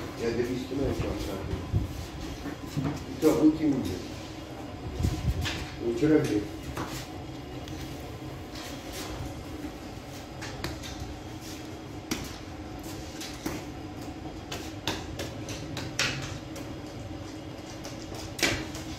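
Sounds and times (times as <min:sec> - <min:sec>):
dough knocks and clatters: 0:09.6 - 0:11.3, 0:12.0 - 0:18.9.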